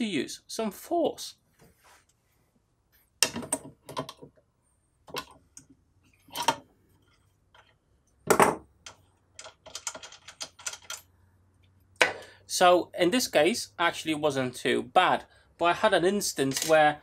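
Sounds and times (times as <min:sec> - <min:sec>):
plastic and metal clicks and knocks: 0:03.2 - 0:04.4.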